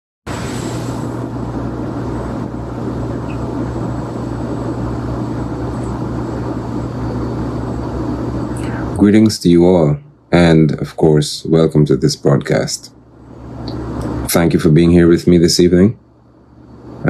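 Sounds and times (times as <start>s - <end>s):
rushing background noise: 0.3s - 10.6s, 11.7s - 14.8s
faint high whine: 0.3s - 17.0s
low machine hum: 0.3s - 17.0s.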